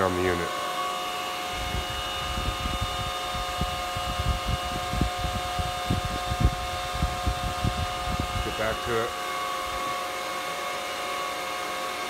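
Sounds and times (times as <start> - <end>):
cooling fans whining: 0.0 - 12.0
air buffeting microphone: 1.5 - 9.1.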